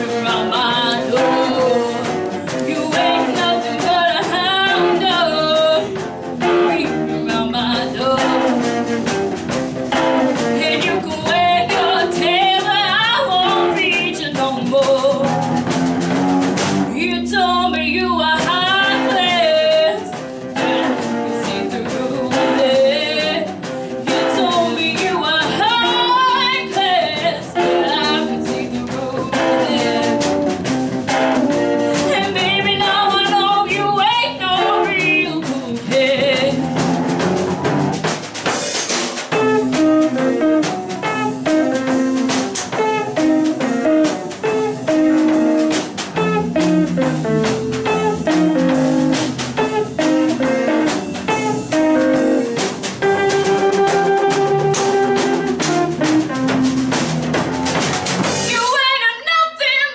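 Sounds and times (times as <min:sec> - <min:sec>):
electric guitar solo: 0:00.0 - 0:14.5, 0:15.2 - 0:38.0, 0:39.3 - 0:58.6
drum kit: 0:00.0 - 0:59.1
rhythm guitar: 0:00.0 - 0:59.9.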